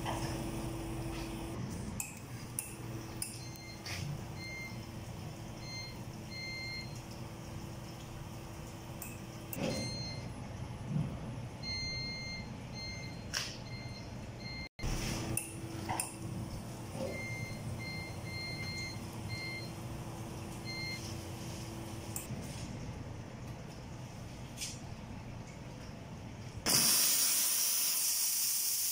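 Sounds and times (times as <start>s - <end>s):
espresso machine hum: 0.0s - 1.6s, 19.0s - 22.2s.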